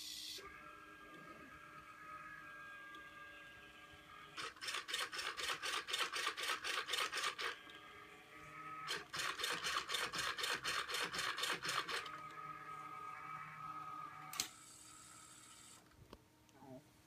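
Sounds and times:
rhythmic rasping motor mechanism: 0.2 - 15.9
faint steady hum: 12.0 - 17.0.

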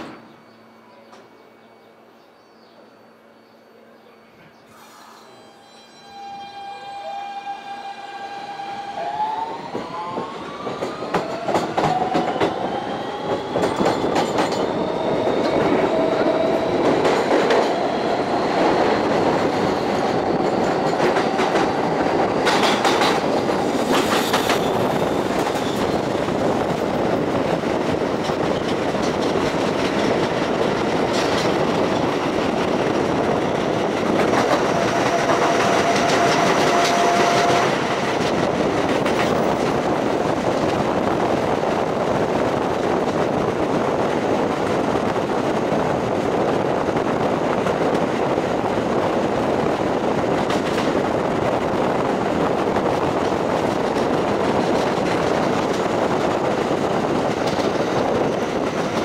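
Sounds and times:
subway train motor whine: 0.0 - 59.0.

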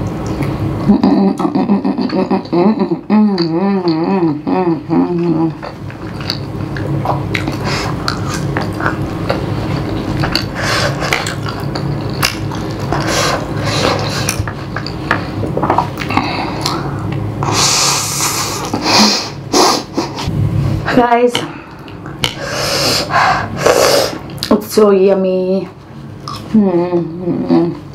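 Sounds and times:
hummed mmm: 0.0 - 20.5, 26.2 - 27.9
steady low hum: 0.0 - 27.9
wet chewing and smacking: 5.2 - 17.3.

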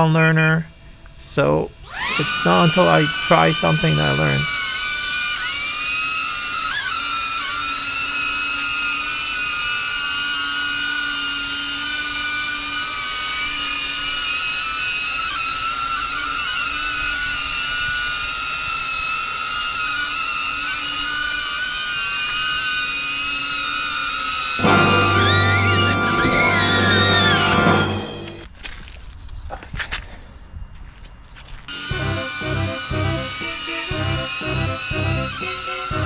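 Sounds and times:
drone propellers whining: 1.7 - 16.6, 24.6 - 28.5, 31.7 - 36.0.

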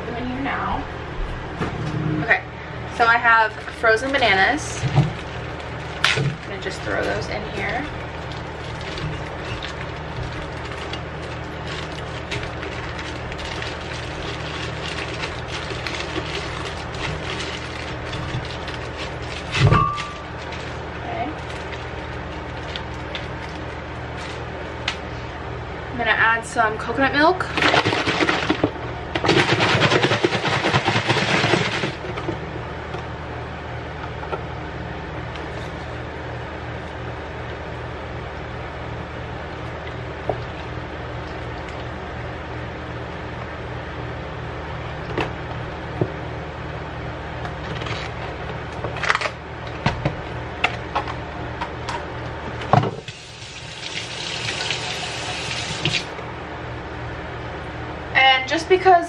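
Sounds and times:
low steady hum: 0.0 - 59.0
faucet running into metal sink: 53.1 - 56.1.

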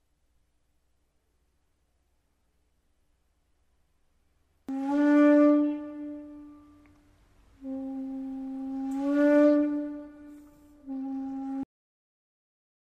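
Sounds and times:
bamboo flute breathy notes: 4.7 - 7.0, 7.6 - 11.7.

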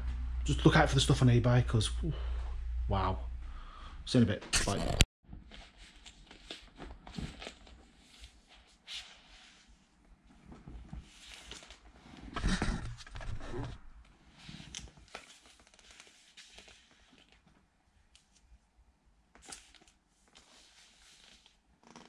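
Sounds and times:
cardboard sleeves rustling and sliding: 5.4 - 17.6, 19.4 - 21.7.

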